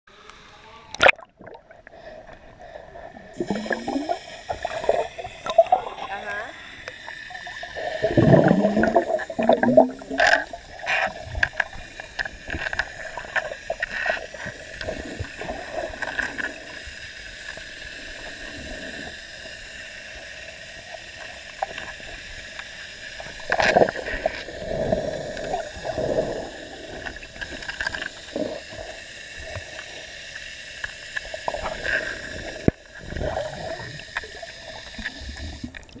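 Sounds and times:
steady hum: 0:00.1 - 0:20.9
underwater water churning and bubbles: 0:00.3 - 0:36.0
splashing and bubbling: 0:00.9 - 0:19.2, 0:23.2 - 0:30.0, 0:31.2 - 0:36.0.

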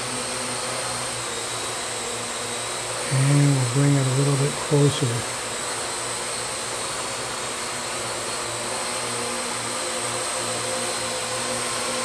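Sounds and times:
quadcopter propellers whirring: 0:00.0 - 0:12.0.

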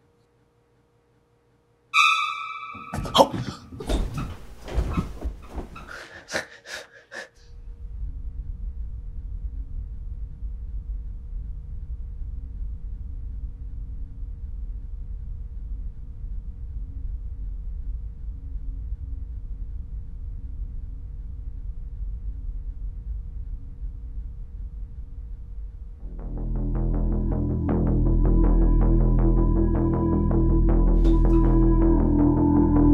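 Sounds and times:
ringing tone: 0:02.0 - 0:03.0
thuds and knocks: 0:02.9 - 0:05.9
rustling: 0:03.6 - 0:06.2
low rumble: 0:07.5 - 0:32.9.

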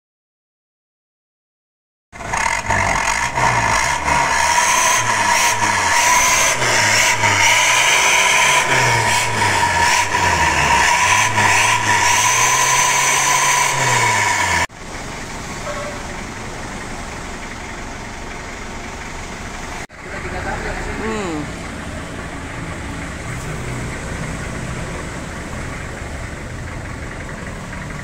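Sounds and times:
car engine revving through exhaust: 0:02.2 - 0:14.7.

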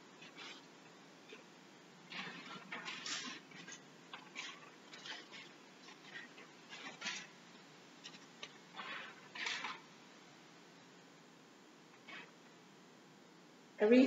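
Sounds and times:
paper rustling: 0:00.2 - 0:00.7, 0:02.1 - 0:07.4, 0:08.0 - 0:09.9, 0:12.0 - 0:12.3.

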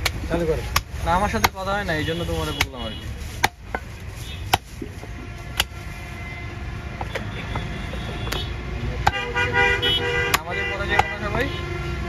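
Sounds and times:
cleaver chopping meat on wood: 0:00.0 - 0:01.8, 0:02.6 - 0:02.8, 0:03.4 - 0:03.9, 0:04.5 - 0:04.7, 0:05.5 - 0:05.8, 0:10.3 - 0:11.4.

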